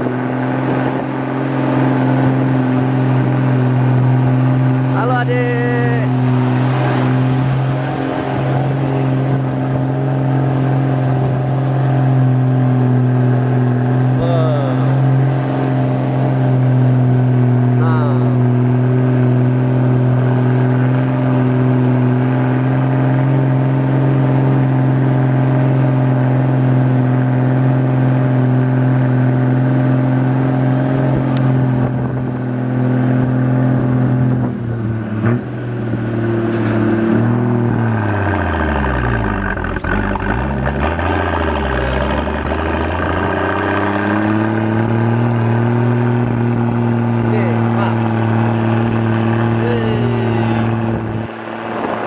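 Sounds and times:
truck engine driving: 0.0s - 52.0s.

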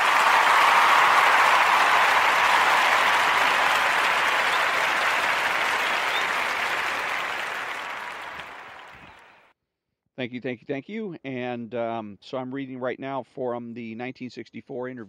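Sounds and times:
audience applause: 0.0s - 9.4s.

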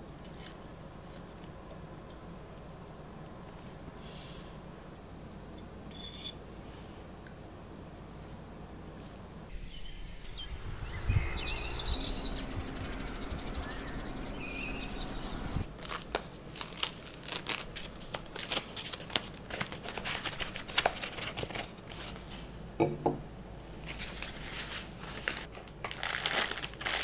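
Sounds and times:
low hum: 9.2s - 15.8s
bird chirps: 9.5s - 15.7s
paper wrapping crinkling: 15.7s - 22.5s, 23.8s - 27.0s.

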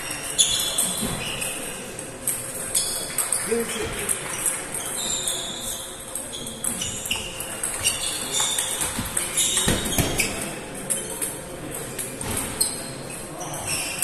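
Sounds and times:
table tennis balls clicking: 2.0s - 5.4s.

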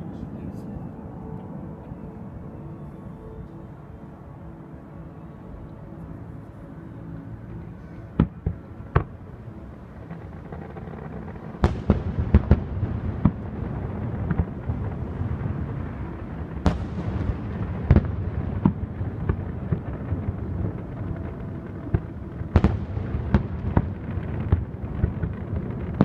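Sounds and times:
fireworks rumble and crackling: 7.6s - 26.0s
fireworks bangs: 16.6s - 26.0s.

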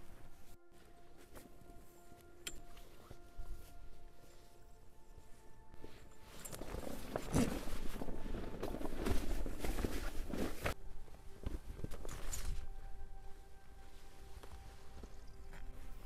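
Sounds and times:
faint background music: 0.0s - 16.0s
tarp rustling and knocking: 5.8s - 10.8s.

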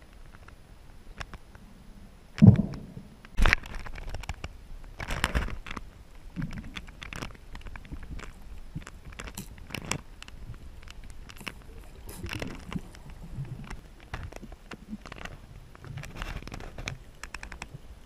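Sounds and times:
underwater crackling and clicking: 0.0s - 1.6s, 2.3s - 18.0s
dull underwater knocks: 2.4s - 3.1s.

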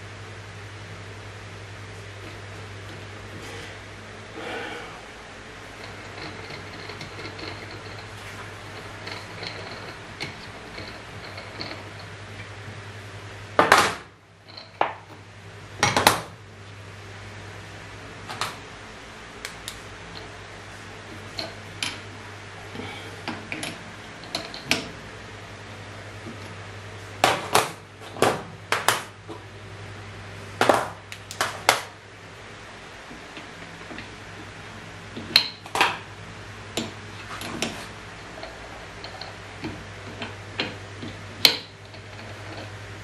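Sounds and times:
steady low hum: 0.0s - 43.0s
metal tools clanking: 5.7s - 12.1s.

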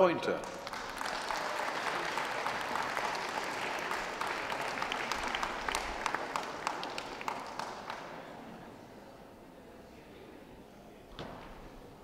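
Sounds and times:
audience applauding: 0.4s - 8.5s.

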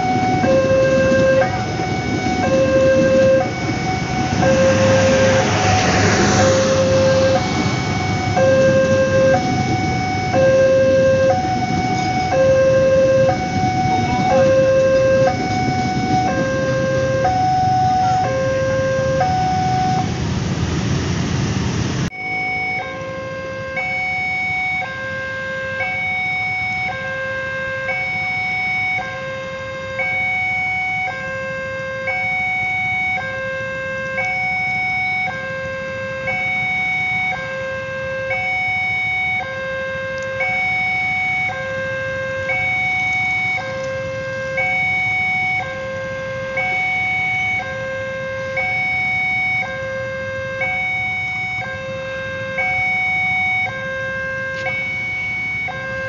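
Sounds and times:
level crossing two-tone alarm: 0.0s - 20.1s, 22.1s - 56.0s
passing train: 0.0s - 23.8s.

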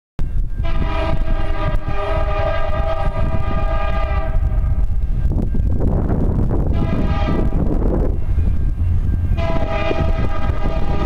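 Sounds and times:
steady low rumble: 0.2s - 11.0s
locomotive air horn blast: 0.6s - 4.8s, 6.7s - 7.7s, 9.4s - 11.0s.

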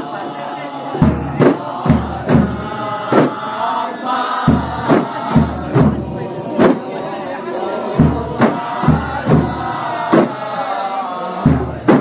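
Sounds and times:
voices chanting together: 0.0s - 12.0s
bass drum booming: 1.0s - 3.4s
frame drums slapping: 1.0s - 3.4s, 4.4s - 6.9s, 8.0s - 10.4s, 11.4s - 12.0s.

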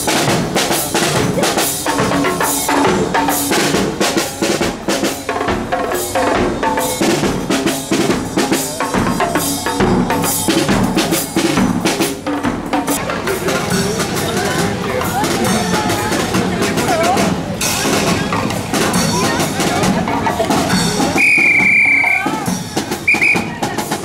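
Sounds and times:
bass drum: 0.0s - 21.8s
marching snare drum: 0.0s - 24.0s
pitched melody: 1.3s - 16.8s.

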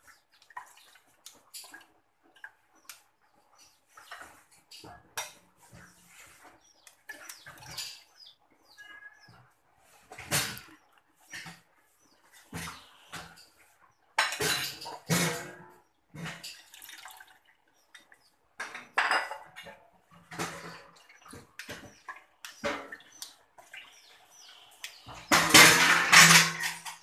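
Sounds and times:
liquid dripping into bowl: 16.5s - 18.2s.

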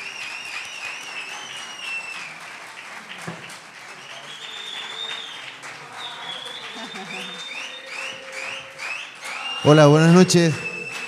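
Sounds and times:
long wavering whistle: 0.0s - 2.3s, 4.2s - 5.4s, 6.0s - 9.8s
audience applauding: 0.0s - 11.0s.

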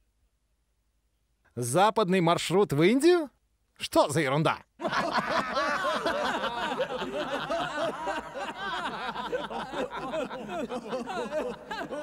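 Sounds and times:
men laughing derisively: 4.8s - 12.0s.

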